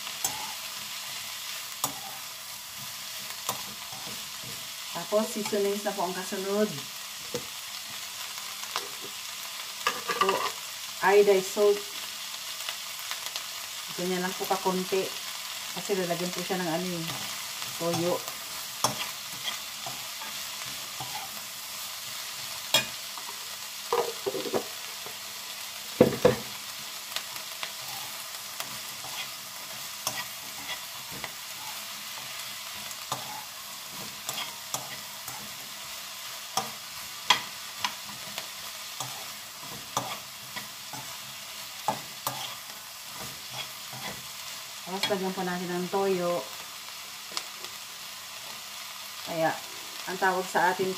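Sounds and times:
vegetables sizzling in frying pan: 0:00.0 - 0:50.9.

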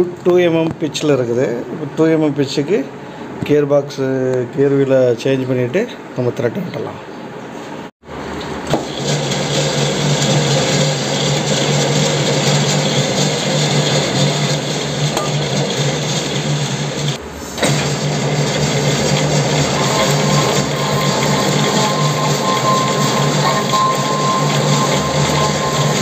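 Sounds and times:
lathe machine hum: 0:08.8 - 0:26.0
metal cutting noise: 0:08.8 - 0:26.0.

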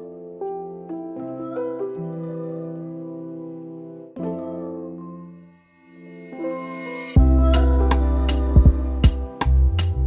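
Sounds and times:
soft ambient music chords: 0:05.7 - 0:10.0.

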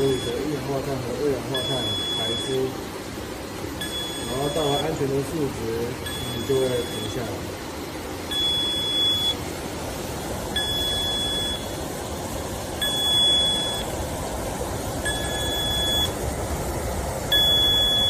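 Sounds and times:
alarm buzzer beeps: 0:00.0 - 0:00.6, 0:01.5 - 0:02.7, 0:03.8 - 0:05.0, 0:06.0 - 0:07.3, 0:08.3 - 0:09.4, 0:10.6 - 0:11.7, 0:12.8 - 0:13.9, 0:15.0 - 0:16.2, 0:17.3 - 0:18.0
small blower fan rushing: 0:00.0 - 0:18.0.

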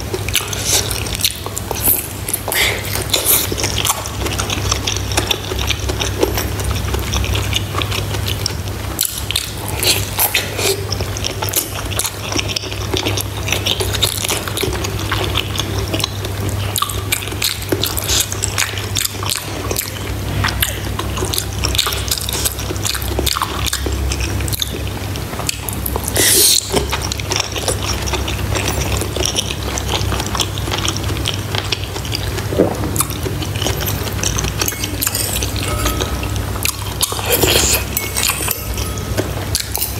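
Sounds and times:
chewing and wet mouth sounds: 0:00.0 - 0:39.9
low hum: 0:32.1 - 0:39.9.

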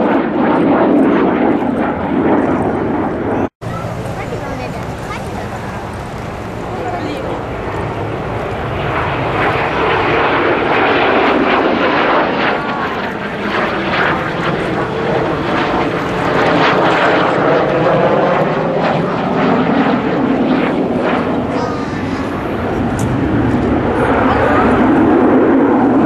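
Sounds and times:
jet aircraft flying overhead: 0:00.0 - 0:26.0.

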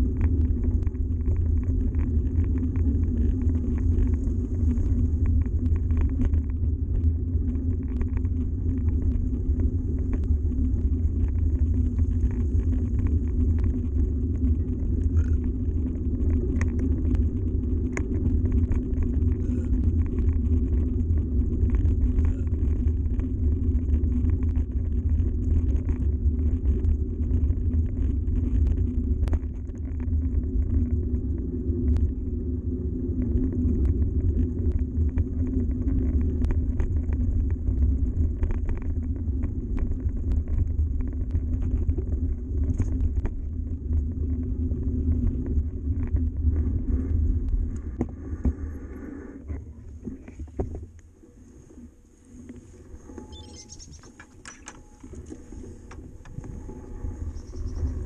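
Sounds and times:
bike tyres rolling on gravel: 0:00.0 - 0:58.0
small clicks and knocks: 0:53.2 - 0:56.7.

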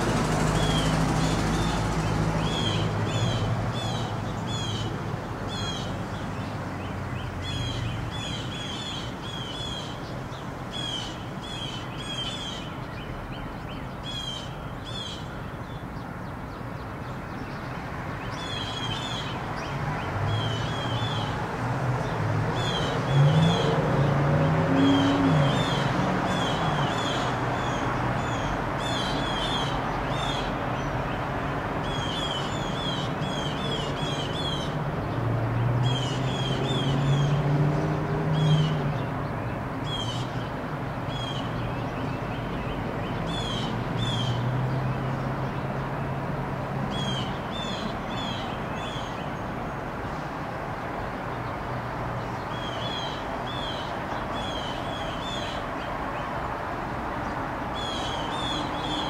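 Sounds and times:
blue jays calling: 0:57.7 - 0:59.0.

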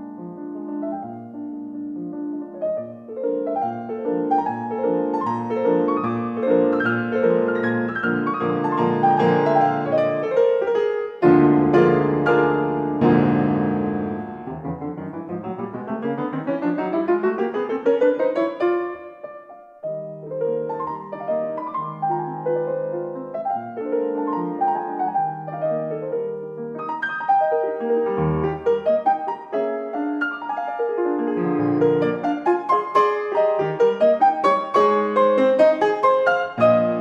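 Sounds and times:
piano music: 0:00.0 - 0:37.0.

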